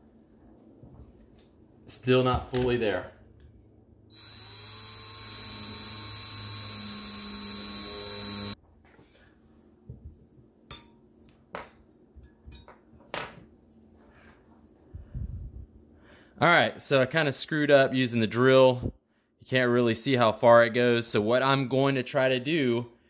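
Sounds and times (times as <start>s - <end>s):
cordless drill running: 4.1s - 8.6s.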